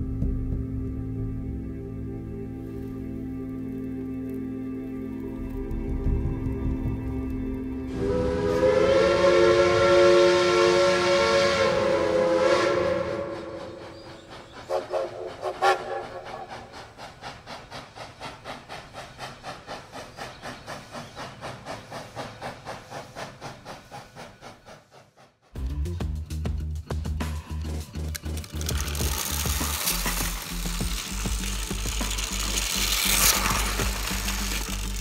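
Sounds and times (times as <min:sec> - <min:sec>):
train clicking on rails: 0:03.4 - 0:25.6, 0:26.4 - 0:35.0
steam locomotive whistle: 0:07.8 - 0:16.6.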